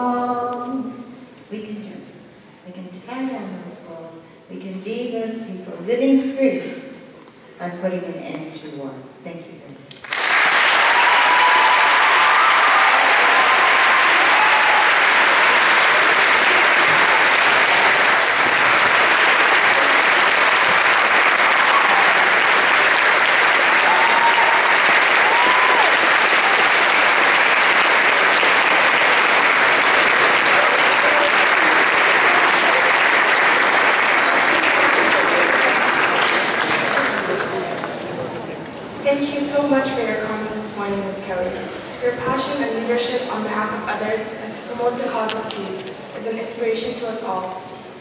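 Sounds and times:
large audience clapping: 9.9 - 38.2.

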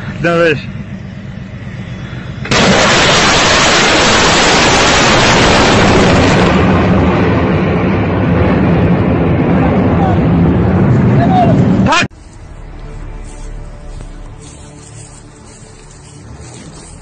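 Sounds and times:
rocket motor roaring: 0.0 - 12.0.

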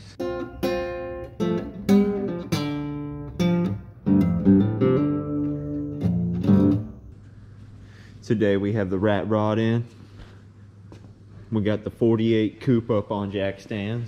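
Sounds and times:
picked guitar notes: 0.0 - 7.2.

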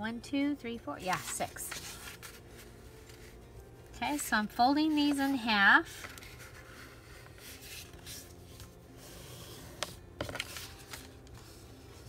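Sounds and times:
paper rustling and creasing: 1.0 - 3.5, 4.1 - 12.0
paper crinkles: 1.1 - 3.4, 5.8 - 8.6.

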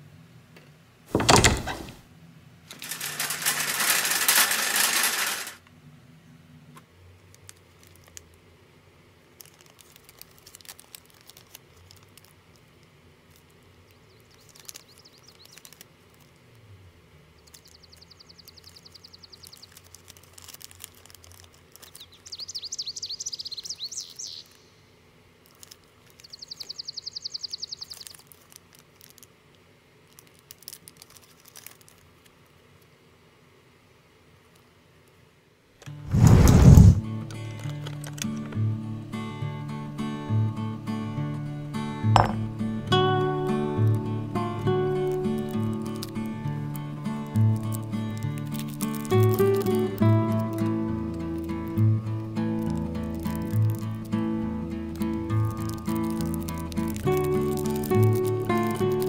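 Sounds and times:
plastic crinkling: 2.7 - 5.6, 7.3 - 8.4, 9.3 - 16.5, 17.4 - 22.6, 25.4 - 26.8, 27.8 - 29.4, 30.0 - 32.5, 44.8 - 59.0
small clicks: 9.4 - 16.4, 17.4 - 22.4, 25.4 - 29.3, 30.1 - 32.4, 45.0 - 54.2, 54.8 - 59.0
loud rush of noise: 36.1 - 37.0.

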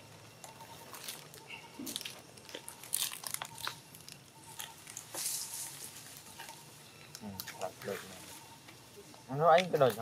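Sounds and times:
dry leaves crackling: 0.7 - 6.7.

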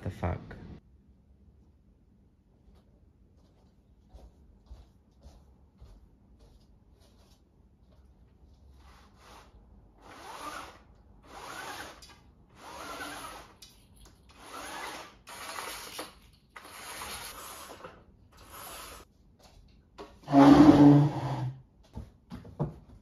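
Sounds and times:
blind cord rubbing through roller: 8.7 - 13.6, 20.3 - 21.6.

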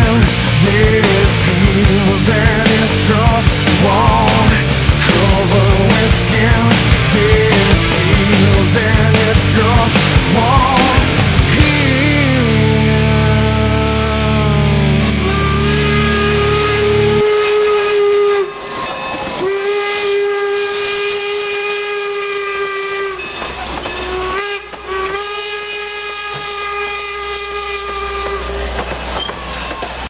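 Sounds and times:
rock music: 0.0 - 19.6
steam whistle chord blasts: 11.6 - 28.8.

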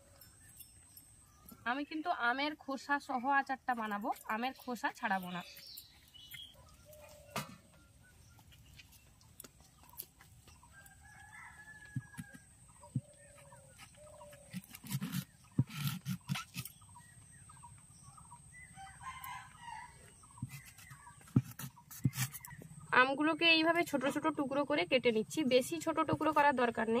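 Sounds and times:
rooster crowing: 10.7 - 12.4, 18.7 - 20.1
mangoes being cut on a blade: 11.9 - 16.9, 20.3 - 22.6.

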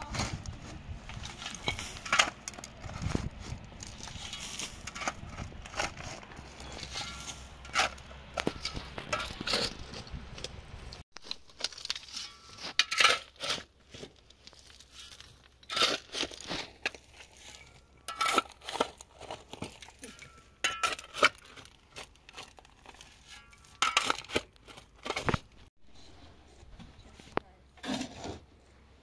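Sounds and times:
crunching and scraping in sand: 0.0 - 28.8.

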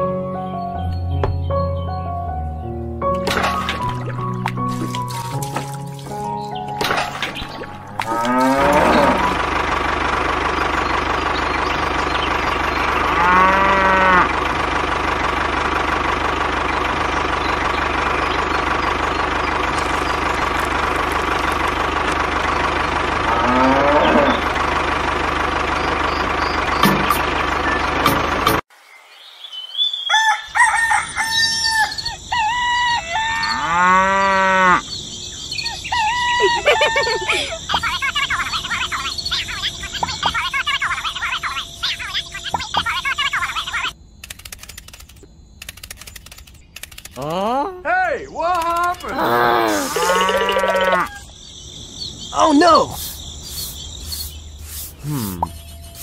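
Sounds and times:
steady motor drone: 7.8 - 28.6
cattle mooing: 7.9 - 9.5, 13.0 - 14.4, 23.2 - 24.6, 33.3 - 34.8, 49.1 - 51.2
rooster crowing: 30.0 - 34.8, 49.7 - 51.3.

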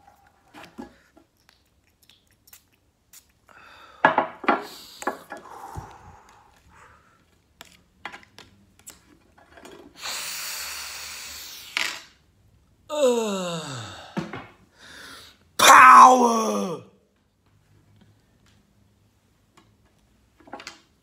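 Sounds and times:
man sighing: 12.9 - 15.0, 15.6 - 16.9.

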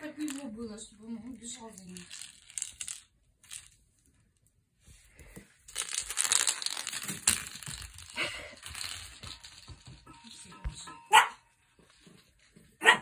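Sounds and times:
plastic toy ball crinkling: 0.0 - 0.7, 1.3 - 4.4, 5.6 - 10.1.

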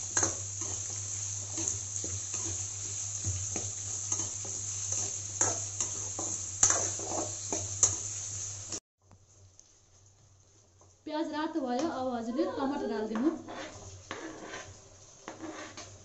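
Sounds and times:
onions sizzling in hot oil: 0.0 - 16.0
spoon scraping metal pan: 13.2 - 16.0.

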